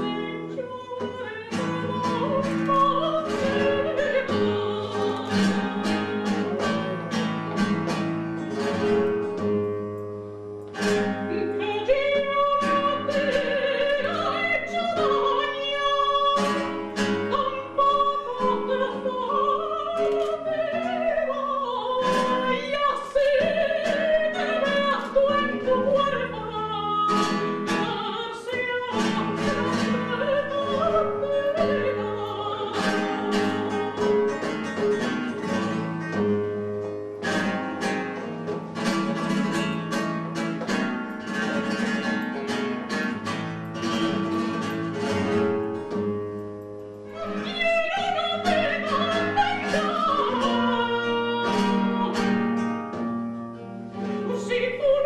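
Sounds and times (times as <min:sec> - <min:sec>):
woman singing operatically: 0:00.0 - 0:07.3, 0:11.1 - 0:35.2, 0:47.1 - 0:52.7, 0:54.0 - 0:55.0
flamenco guitar: 0:00.0 - 0:55.0.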